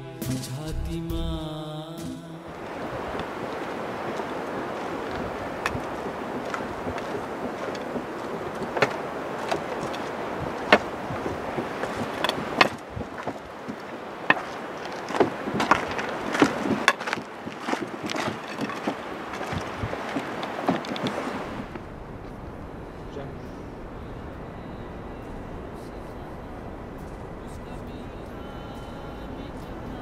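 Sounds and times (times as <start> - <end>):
wind hissing: 2.5 - 30.0
footsteps on rocky trail: 2.6 - 21.8
walking stick on stone: 2.6 - 21.8.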